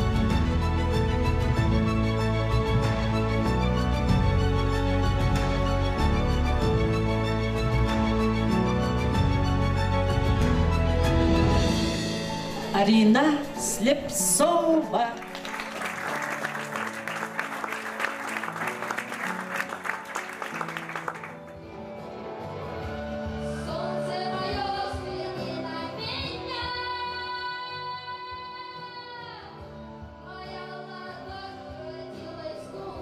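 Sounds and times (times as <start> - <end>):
backing music: 0.0 - 33.0
audience applause: 15.2 - 21.7
girl singing into microphone: 23.6 - 33.0.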